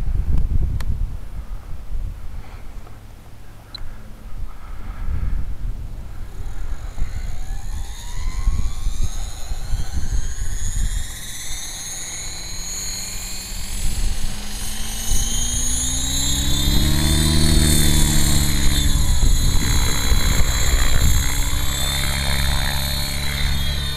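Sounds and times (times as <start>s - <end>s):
model helicopter rotor whine: 1.4s - 23.9s.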